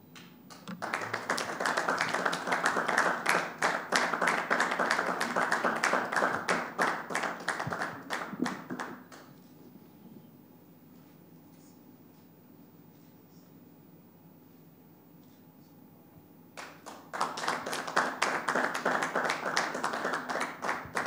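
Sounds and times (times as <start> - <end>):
audience clapping: 0.2 - 9.3, 16.6 - 21.0.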